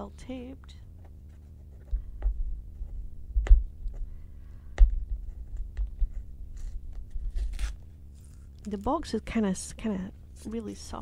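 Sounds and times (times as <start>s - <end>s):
tape and packaging tearing: 6.6s - 8.8s.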